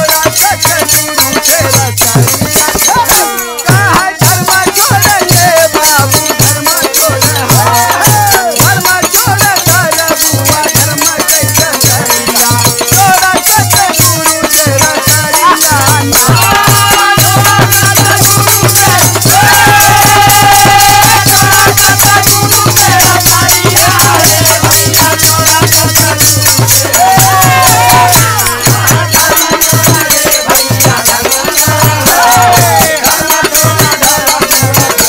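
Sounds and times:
hand drum beat: 0:00.0 - 0:35.0
jingle rings shaken: 0:00.0 - 0:35.0
sung or harmonium melody: 0:00.0 - 0:35.0.

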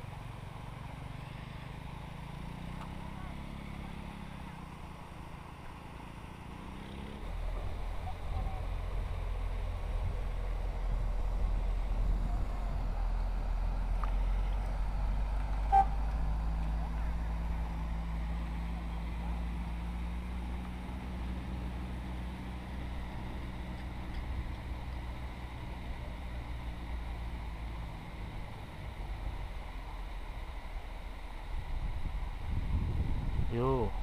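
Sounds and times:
distant engine drone: 0:00.0 - 0:34.0
short high beep: 0:15.7 - 0:16.0.

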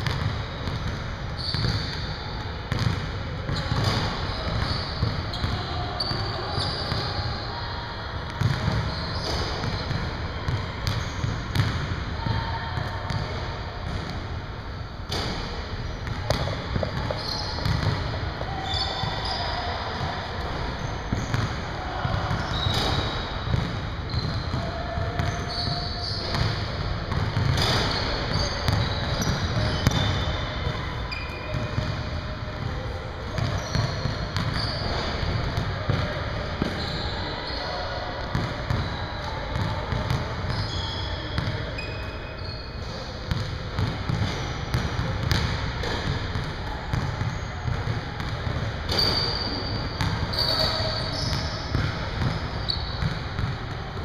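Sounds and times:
basketballs bouncing on wooden floor: 0:00.0 - 0:02.0, 0:02.7 - 0:06.1, 0:08.4 - 0:12.0, 0:16.0 - 0:18.2, 0:22.1 - 0:24.6, 0:25.2 - 0:30.8, 0:43.3 - 0:49.2
sneaker squeaks: 0:00.0 - 0:07.6, 0:08.3 - 0:14.2, 0:15.1 - 0:53.7.

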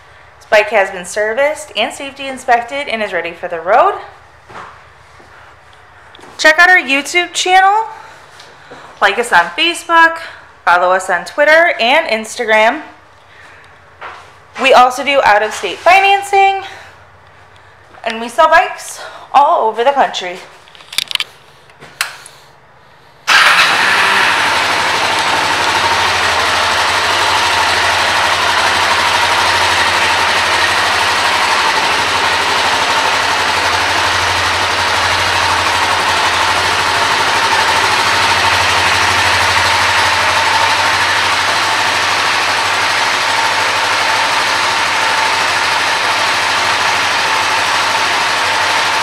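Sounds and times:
motorcycle engine starting and idling: 0:12.4 - 0:18.0, 0:23.2 - 0:49.0.

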